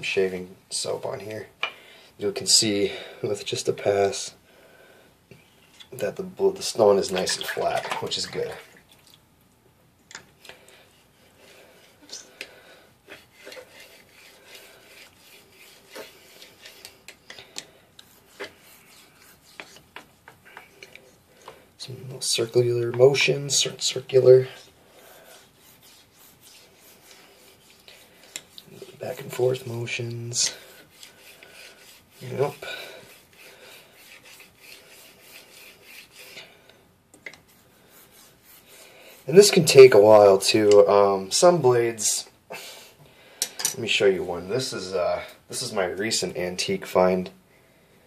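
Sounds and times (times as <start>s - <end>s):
razor scraping on whetstone: 10.9s - 12.4s, 13.0s - 21.2s, 23.2s - 36.5s, 37.3s - 39.8s.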